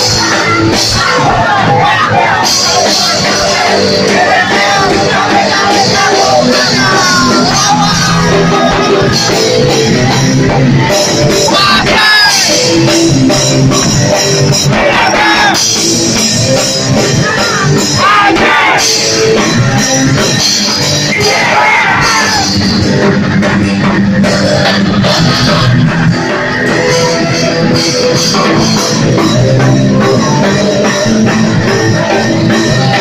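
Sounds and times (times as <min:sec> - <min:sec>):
person singing: 0:00.0 - 0:22.9
drums: 0:00.0 - 0:33.0
rock band playing live: 0:00.0 - 0:33.0.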